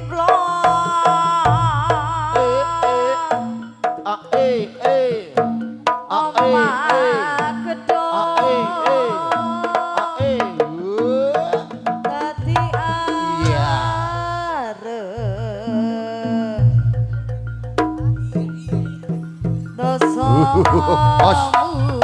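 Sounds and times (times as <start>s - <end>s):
percussion: 0.0s - 22.0s
hand drum strokes: 16.4s - 22.0s
deep low notes: 16.7s - 21.5s
pitch-bending melody line: 17.2s - 21.5s.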